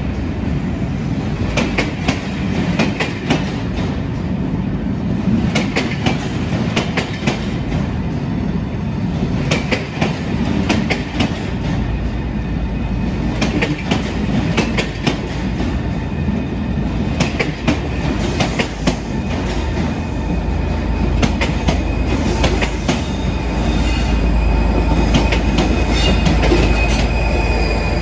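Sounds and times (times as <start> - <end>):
diesel locomotive low rumble: 0.0 - 28.0
high flange squeals: 18.2 - 28.0.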